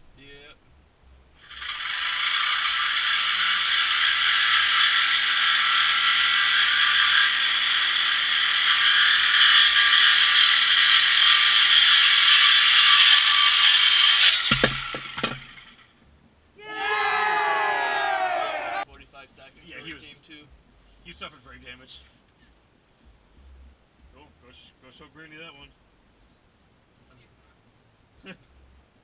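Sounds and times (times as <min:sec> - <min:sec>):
reciprocating saw cutting metal pipe: 0:01.4 - 0:15.8.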